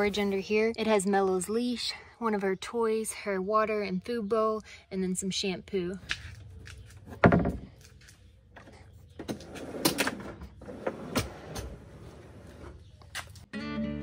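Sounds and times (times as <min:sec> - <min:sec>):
wooden knocks and scrapes: 0:06.9 - 0:07.9
acoustic guitar music: 0:13.5 - 0:14.0.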